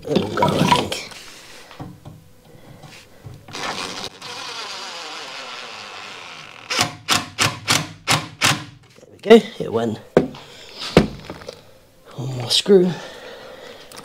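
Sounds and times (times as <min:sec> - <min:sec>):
cordless drill driving a screw: 0:03.5 - 0:07.8.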